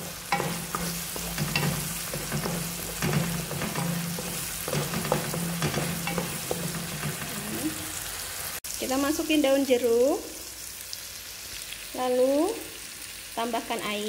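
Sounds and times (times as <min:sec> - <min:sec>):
wooden spatula scraping a pan: 0:00.0 - 0:07.9
spice paste sizzling in hot oil: 0:00.0 - 0:14.0.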